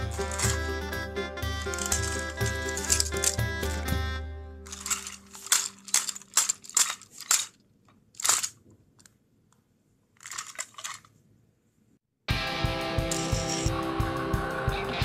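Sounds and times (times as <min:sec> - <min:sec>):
plastic toy clicks and knocks: 0:00.1 - 0:00.7, 0:01.7 - 0:03.4, 0:04.7 - 0:09.1, 0:10.2 - 0:11.1, 0:13.1 - 0:13.7.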